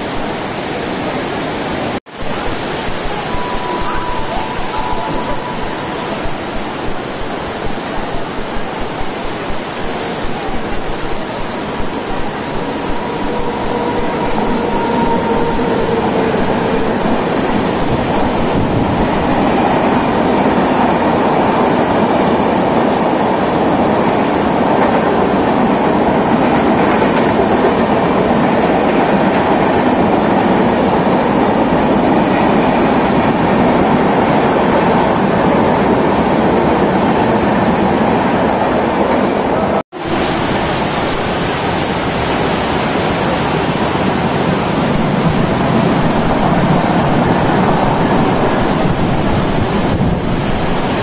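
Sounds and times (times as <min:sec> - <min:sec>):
heavy rain hiss: 0:00.0 - 0:36.1, 0:39.9 - 0:51.0
train wheels rumbling on track: 0:02.1 - 0:40.4, 0:43.6 - 0:51.0.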